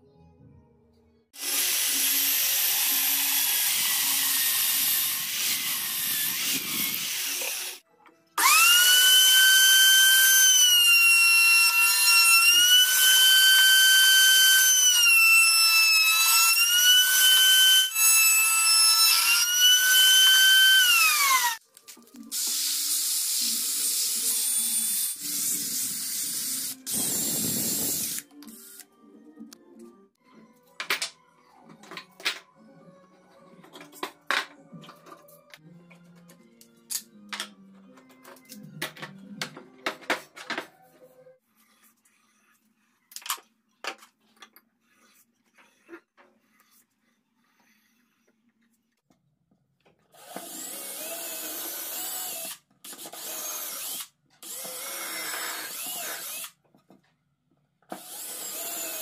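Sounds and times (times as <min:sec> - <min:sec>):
drill sanding wood: 0:08.4 - 0:21.6
router whining: 0:08.4 - 0:21.6.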